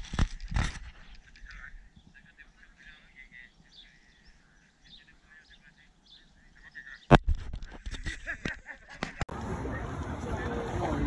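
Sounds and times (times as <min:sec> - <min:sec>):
small birds chirping: 0:01.0 - 0:07.2.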